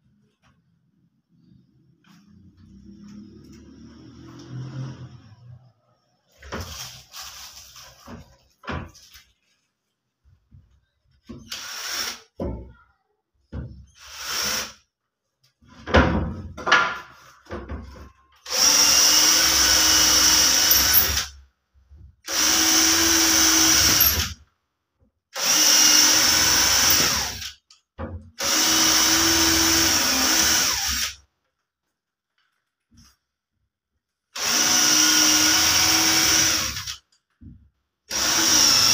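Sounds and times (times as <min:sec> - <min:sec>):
electric drill boring into wood: 0:11.5 - 0:12.2, 0:14.0 - 0:14.8, 0:18.5 - 0:21.3, 0:22.3 - 0:24.4, 0:25.4 - 0:27.5, 0:28.4 - 0:31.2, 0:34.4 - 0:37.0, 0:38.1 - 0:38.9.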